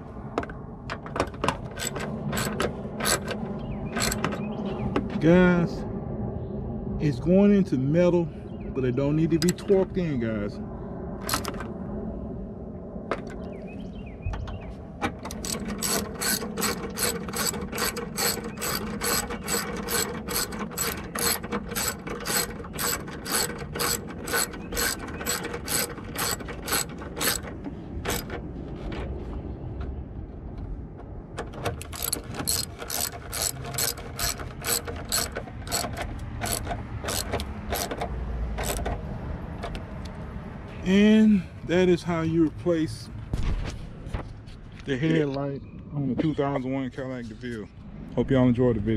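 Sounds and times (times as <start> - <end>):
socket ratchet clicking: 1.4 - 3.4, 4.0 - 4.4, 11.2 - 11.6, 15.2 - 28.4, 31.7 - 39.0.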